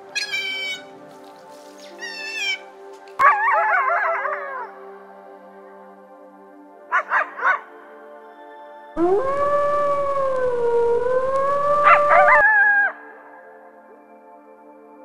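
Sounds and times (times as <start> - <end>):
dog howling and yelping: 9.0 - 12.5.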